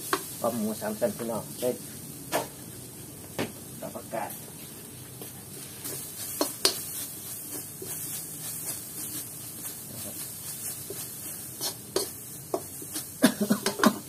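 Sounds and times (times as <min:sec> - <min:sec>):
faint steady hiss: 0:00.0 - 0:14.0
metal spatula scraping wok: 0:05.8 - 0:14.0.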